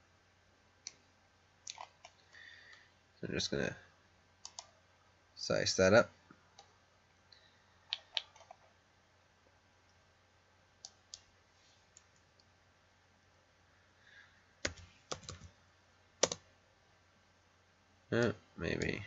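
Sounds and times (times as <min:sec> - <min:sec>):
computer mouse clicks: 0:01.7 - 0:02.8, 0:04.4 - 0:04.8, 0:07.9 - 0:08.7
keyboard key presses: 0:14.6 - 0:15.5.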